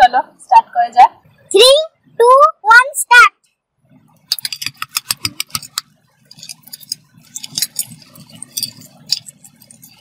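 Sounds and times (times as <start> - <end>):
eggs tapping on steel plates: 4.2 - 10.0.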